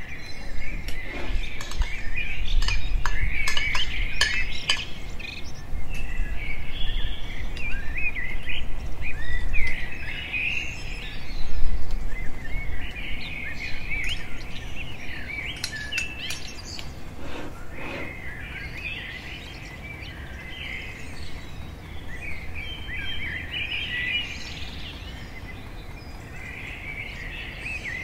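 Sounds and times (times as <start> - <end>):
songbirds chirping: 0.0 - 28.0.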